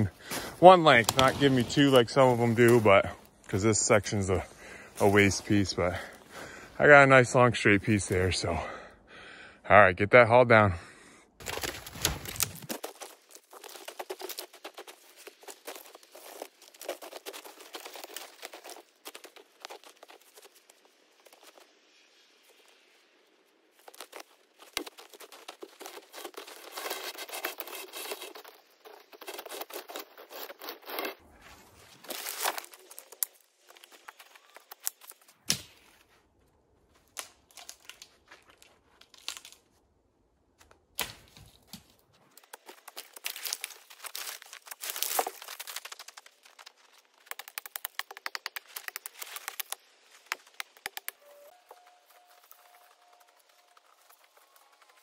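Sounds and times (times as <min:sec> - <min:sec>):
log dragged through snow: 0:00.0 - 0:03.1
twigs crackling and snapping: 0:00.0 - 0:03.6, 0:11.4 - 0:23.1, 0:23.7 - 0:36.0, 0:36.9 - 0:39.9, 0:40.6 - 0:55.0
footsteps crunching in snow: 0:00.0 - 0:06.3, 0:11.4 - 0:22.7, 0:23.7 - 0:39.3, 0:41.3 - 0:55.0.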